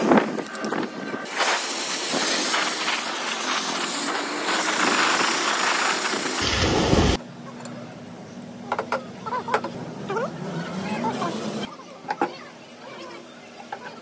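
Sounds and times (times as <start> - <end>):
pressure washer jet hissing: 1.3 - 7.2.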